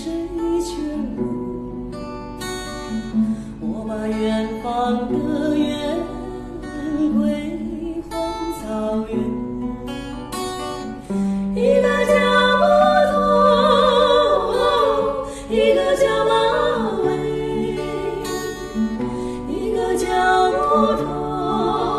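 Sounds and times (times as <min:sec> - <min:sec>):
woman singing: 0:00.0 - 0:01.5, 0:03.6 - 0:10.3, 0:11.6 - 0:21.9
acoustic guitar: 0:00.0 - 0:21.9
second woman singing harmony: 0:11.6 - 0:21.9.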